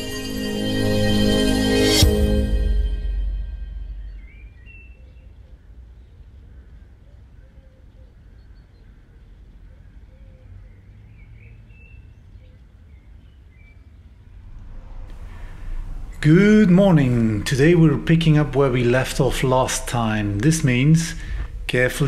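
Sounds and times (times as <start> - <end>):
steady low rumble: 0.0 - 5.4, 13.9 - 22.0
faint bird chirps: 3.9 - 14.4.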